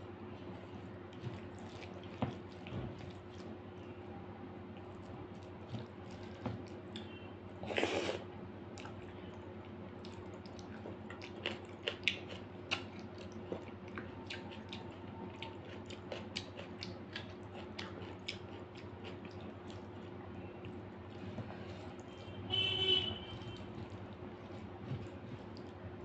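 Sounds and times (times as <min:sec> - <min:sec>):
squishing food by hand: 0:00.0 - 0:26.0
steady low hum: 0:00.0 - 0:26.0
wet chewing: 0:01.1 - 0:03.6, 0:09.6 - 0:21.2, 0:23.2 - 0:26.0.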